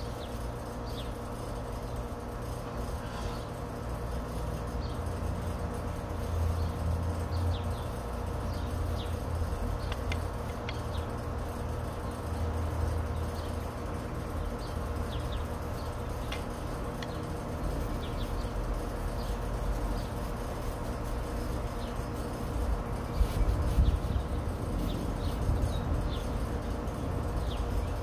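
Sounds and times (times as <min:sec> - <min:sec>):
small birds chirping: 0:00.0 - 0:28.0.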